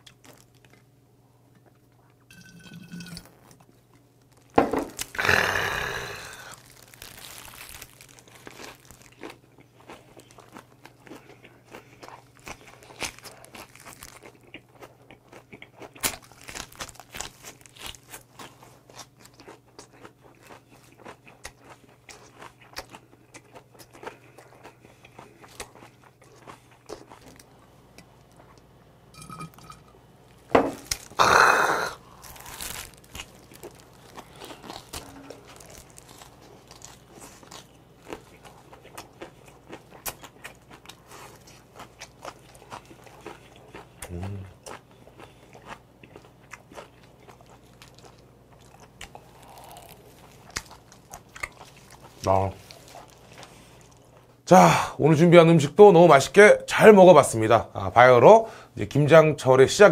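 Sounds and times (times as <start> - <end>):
wet crunchy chewing: 4.3 - 27.5, 30.8 - 54.3.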